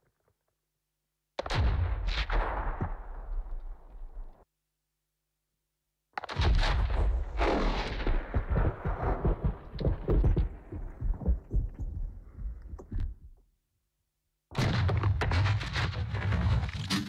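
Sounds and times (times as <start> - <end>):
sharp cracks and knocks: 6.2 - 13.3.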